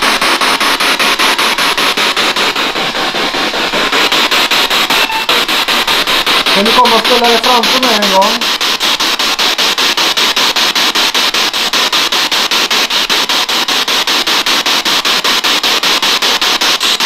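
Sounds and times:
radio static sweeping: 0.0s - 13.3s.

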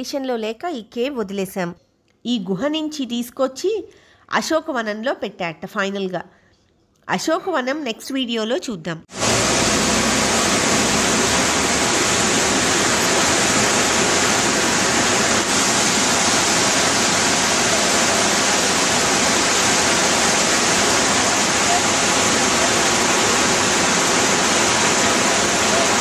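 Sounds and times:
waterfall rushing: 9.1s - 26.0s.

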